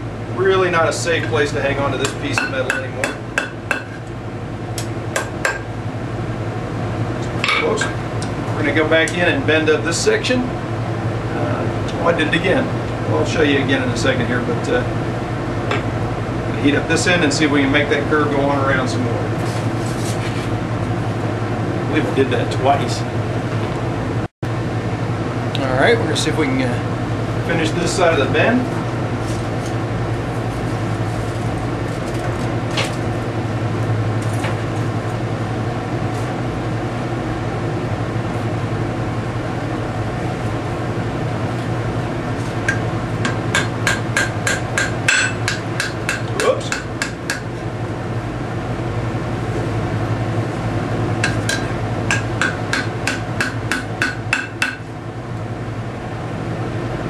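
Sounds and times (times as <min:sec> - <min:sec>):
steady low hum: 0:00.0 - 0:57.0
hammer striking hot steel on anvil: 0:02.0 - 0:04.1, 0:04.8 - 0:05.7, 0:42.7 - 0:47.6, 0:51.2 - 0:54.9.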